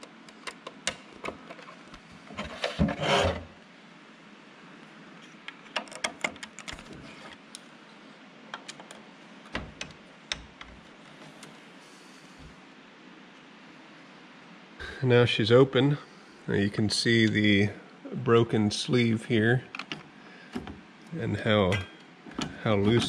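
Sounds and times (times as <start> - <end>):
clicks and knocks of parts: 0.0 - 3.0, 5.4 - 7.6, 8.5 - 11.5, 19.7 - 20.8
loud scraping rub of parts: 2.3 - 3.6.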